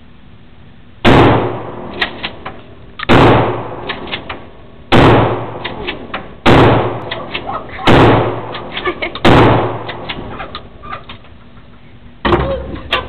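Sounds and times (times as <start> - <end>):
shotgun blasts echoing: 1.0 - 2.4, 3.1 - 4.3, 4.9 - 5.8, 6.4 - 10.1.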